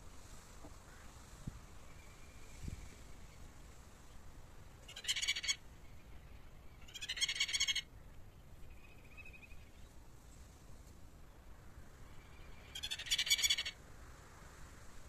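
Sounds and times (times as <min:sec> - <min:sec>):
bird harsh buzzy calls: 0:04.9 - 0:05.6, 0:06.8 - 0:07.9, 0:12.6 - 0:13.8.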